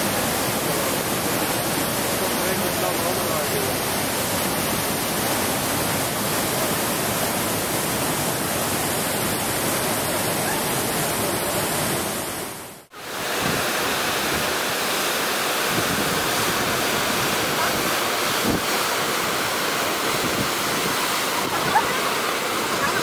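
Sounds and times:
white-water river rapids rushing: 0.0s - 23.0s.

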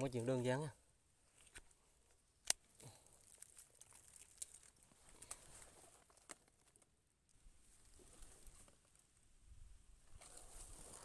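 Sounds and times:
rustling in dry leaves: 3.0s - 6.8s, 10.1s - 11.0s.

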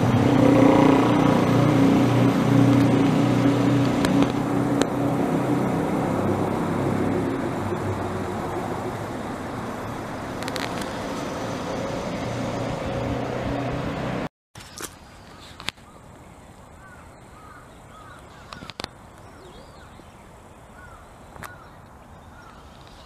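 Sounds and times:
vehicle engine humming: 0.0s - 14.3s
street traffic: 0.0s - 23.0s.

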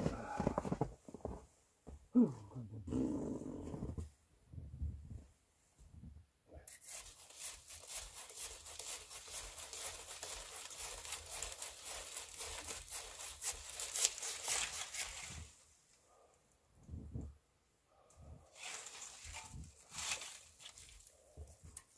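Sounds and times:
hand saw cutting branches: 6.7s - 15.6s, 18.5s - 21.1s.

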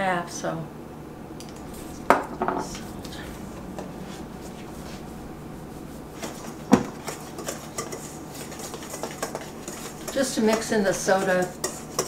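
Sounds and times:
whisk stirring flour in bowl: 6.1s - 12.0s.

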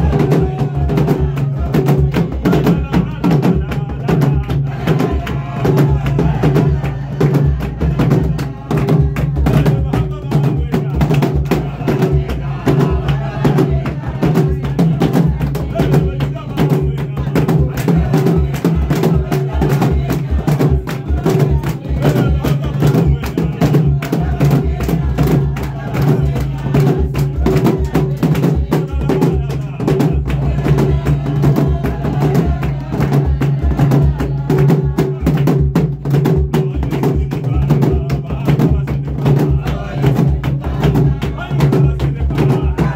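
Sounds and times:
large drums beaten fast: 0.0s - 42.9s
hand claps: 1.0s - 11.6s, 14.6s - 36.6s.

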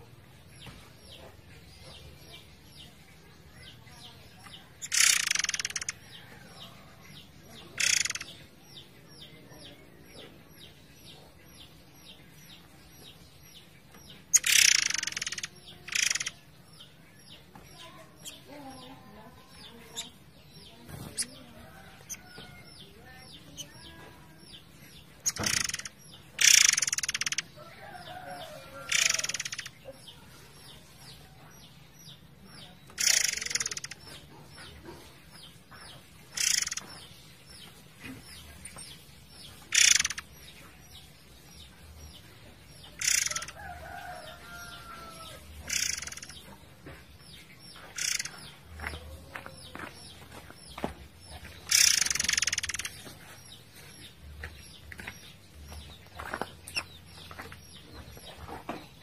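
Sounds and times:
songbird harsh rasping calls: 4.8s - 6.0s, 7.6s - 8.4s, 14.3s - 16.4s, 25.2s - 27.5s, 28.3s - 29.8s, 32.9s - 34.0s, 36.3s - 36.9s, 39.6s - 40.3s, 42.8s - 46.4s, 47.8s - 48.5s, 51.6s - 53.0s.

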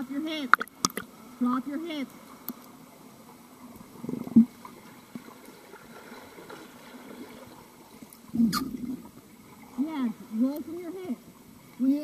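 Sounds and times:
bubbling and gurgling: 0.5s - 1.1s, 8.3s - 9.2s
muffled churning water underwater: 2.2s - 12.0s.

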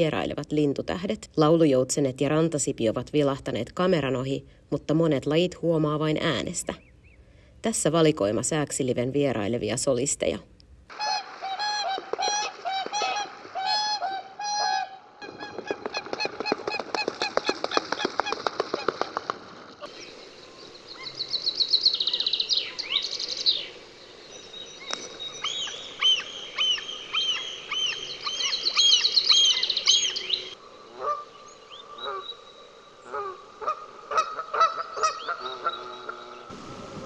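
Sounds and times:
geese honking: 10.9s - 18.0s, 25.5s - 32.4s, 33.0s - 36.5s
gull alarm calls: 11.0s - 17.8s, 25.3s - 32.4s, 33.0s - 36.5s
finch trilling song: 19.9s - 36.5s.

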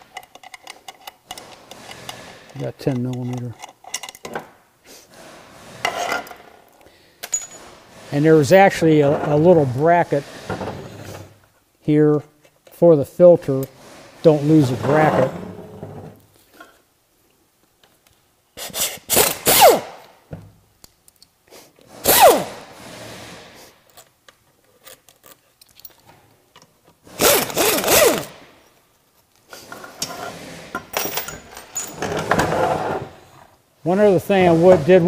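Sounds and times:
pneumatic air ratchet bursts: 18.6s - 20.0s, 21.9s - 23.8s, 27.1s - 28.4s.

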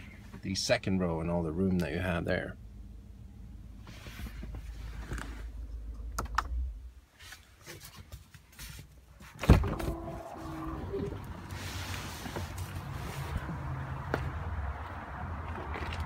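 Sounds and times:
car door unlatching clunk: 9.4s - 10.1s.

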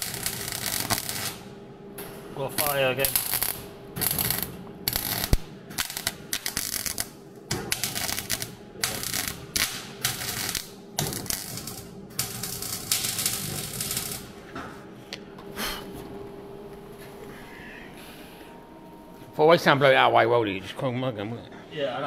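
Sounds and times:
welder crackling: 0.0s - 1.5s, 2.4s - 14.4s
steady hum: 0.0s - 22.0s.

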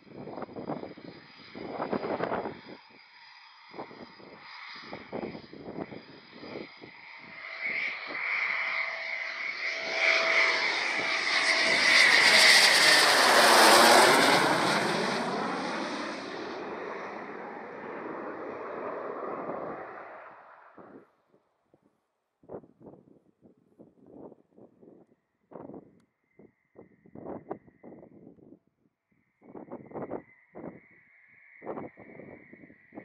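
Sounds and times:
jet engine whine passing: 4.8s - 21.0s.

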